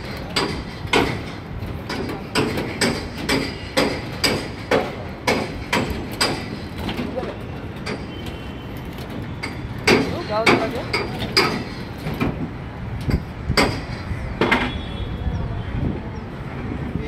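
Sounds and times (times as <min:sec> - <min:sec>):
hammer striking metal: 0:00.3 - 0:06.7, 0:09.4 - 0:12.3.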